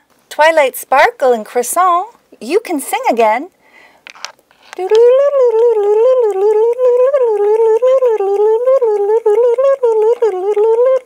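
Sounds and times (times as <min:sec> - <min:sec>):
woman humming a tune: 0:04.8 - 0:11.0.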